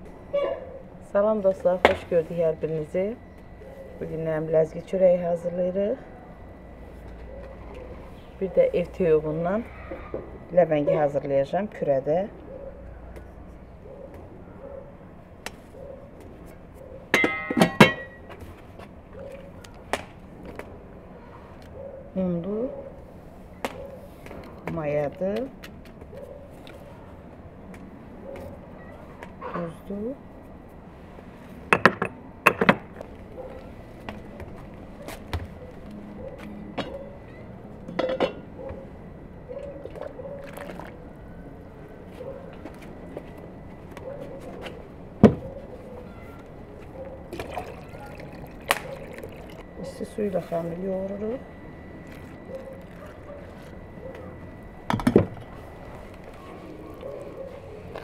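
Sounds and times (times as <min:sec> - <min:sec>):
utensils clinking against a bowl: 0:17.2 - 0:18.2, 0:37.9 - 0:38.5
water poured into a saucepan: 0:47.4 - 0:49.6.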